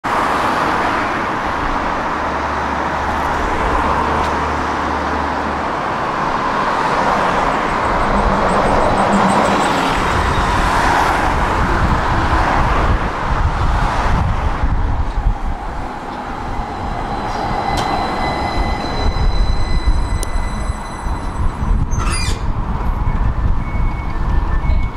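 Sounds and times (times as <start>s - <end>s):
tram rumbling: 0.0s - 24.9s
high whining tram drive tones: 0.9s - 24.9s.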